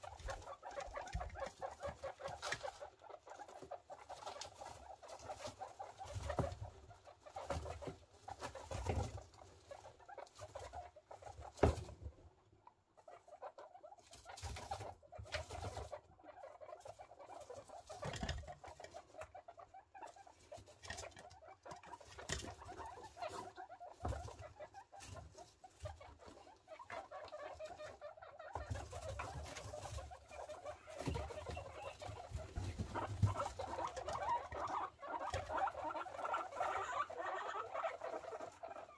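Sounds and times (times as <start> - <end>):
rustling in wood shavings: 0.0 - 12.0, 21.9 - 38.9
guinea pigs warbling: 0.0 - 38.9.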